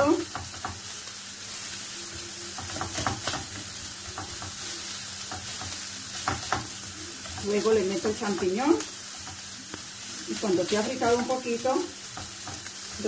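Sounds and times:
food sizzling in a frying pan: 0.0 - 13.0
wooden spoon scraping a pan: 2.5 - 9.5.

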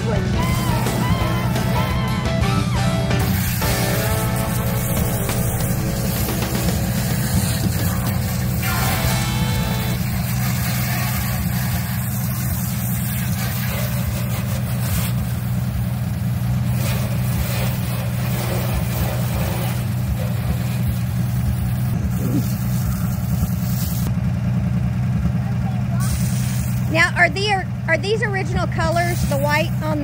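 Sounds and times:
engine idling: 0.0 - 30.0
water spraying from hose: 3.2 - 24.1, 25.9 - 27.0, 28.8 - 30.0.

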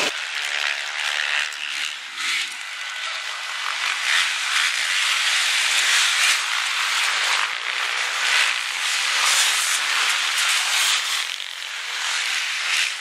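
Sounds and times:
motorcycle engines rushing: 0.0 - 2.6.

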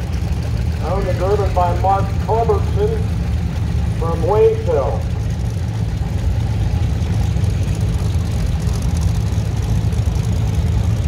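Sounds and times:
tractor engines rumbling: 0.0 - 11.0.

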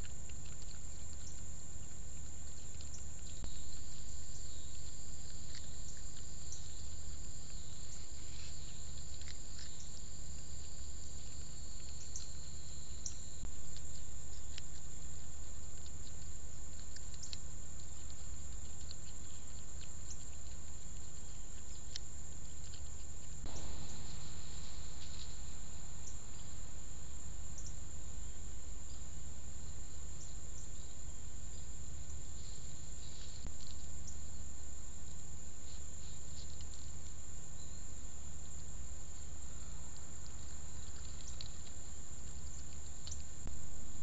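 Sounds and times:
faint ticks: 0.0 - 27.9, 38.4 - 43.6
insect chirps: 0.0 - 44.0
low hum: 0.0 - 44.0
thin high whine: 23.5 - 30.2.

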